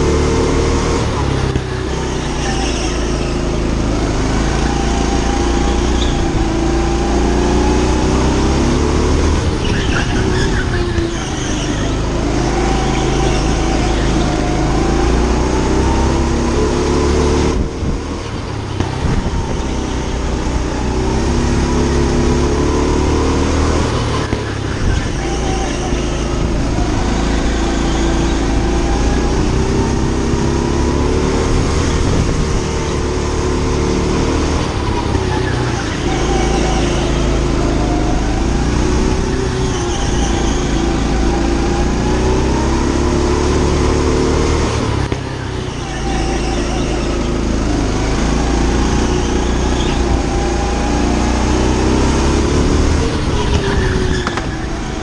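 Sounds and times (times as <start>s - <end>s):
go-kart motor revving: 0.0s - 55.0s.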